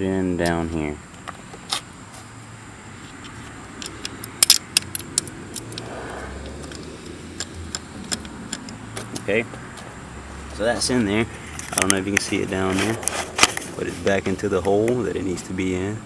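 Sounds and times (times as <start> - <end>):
steady low hum: 0.0 - 16.0
small metallic rattles: 3.2 - 9.3.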